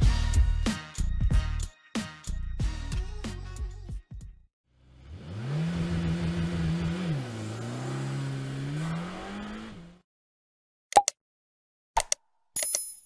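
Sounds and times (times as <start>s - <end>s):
car engine accelerating: 4.8s - 10.0s
sharp clicks: 11.0s - 11.2s.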